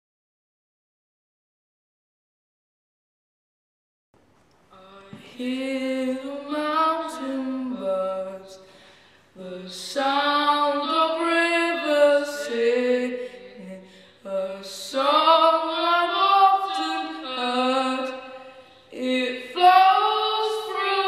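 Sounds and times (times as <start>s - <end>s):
boy singing long held notes: 4.7s - 8.7s, 9.4s - 21.0s
singer breathing: 8.6s - 9.4s, 13.1s - 14.3s, 18.2s - 19.0s.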